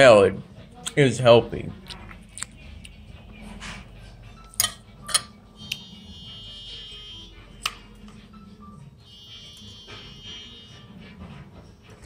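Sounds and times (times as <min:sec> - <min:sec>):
high electronic tone: 0:05.5 - 0:07.6, 0:09.0 - 0:11.0.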